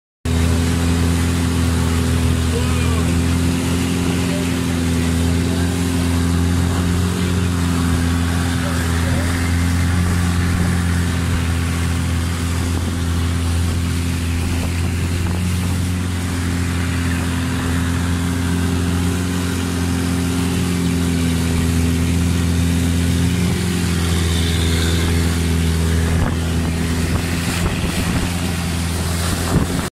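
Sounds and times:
boat engine droning: 0.3 - 29.9
water and wind rushing: 0.3 - 29.9.

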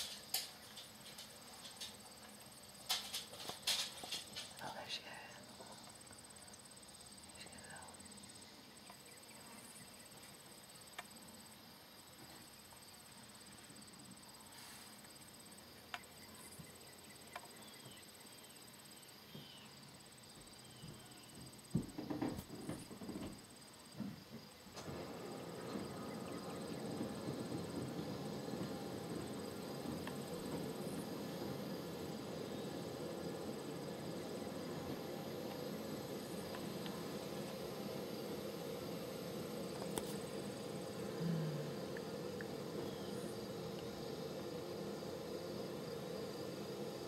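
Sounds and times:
crickets and insects trilling: 0.0 - 47.0
steady rushing noise: 25.0 - 47.0.

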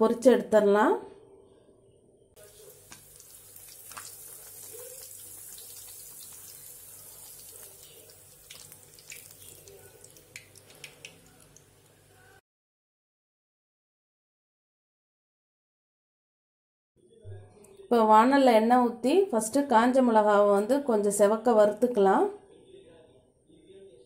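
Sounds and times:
oil crackling: 2.4 - 12.1
frying in hot oil sizzling: 2.4 - 12.2.

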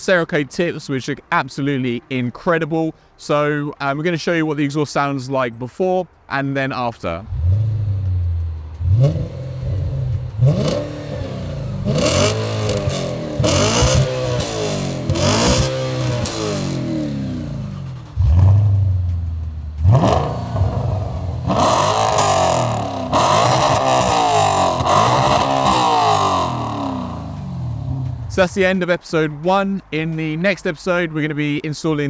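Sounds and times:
car engine revving: 7.1 - 29.9.

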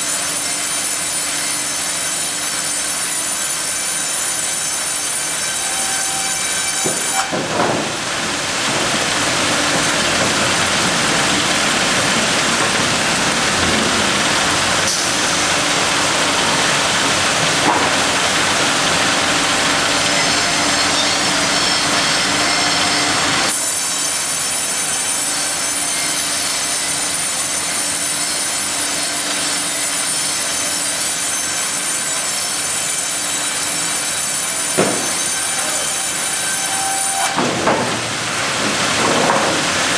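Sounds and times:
bandsaw cutting log: 0.0 - 39.9
bandsaw whining: 9.0 - 37.7.

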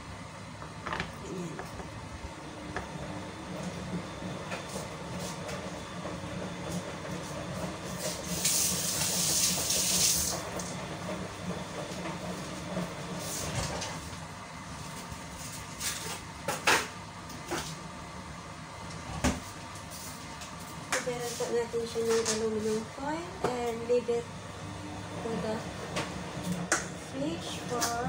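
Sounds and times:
tap water running into sink: 8.3 - 10.4.

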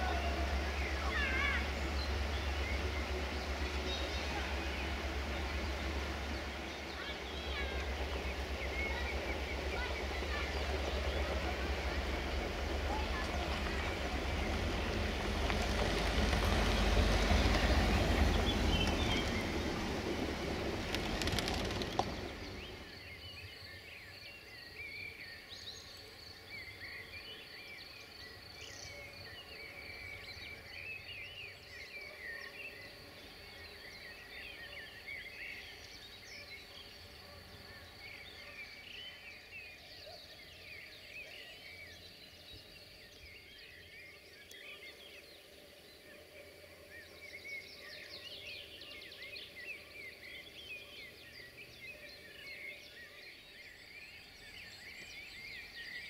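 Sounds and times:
loud rushing with low rumble: 0.0 - 23.1
birds chirping and singing: 0.0 - 56.0.

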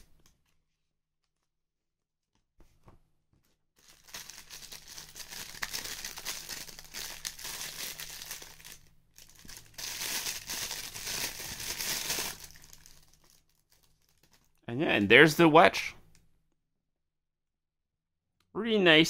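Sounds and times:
plastic bag crinkling: 3.8 - 14.6.

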